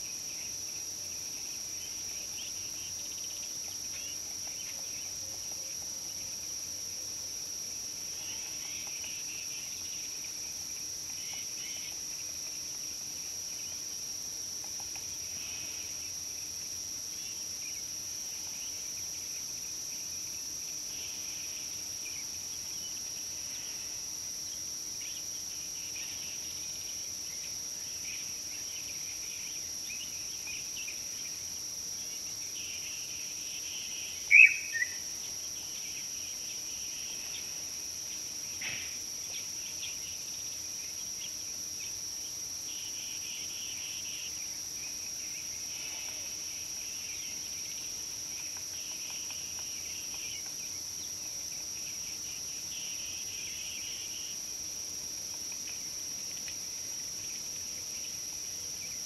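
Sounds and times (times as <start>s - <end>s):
high insect drone: 0.0s - 59.0s
bird chirps: 34.3s - 35.0s.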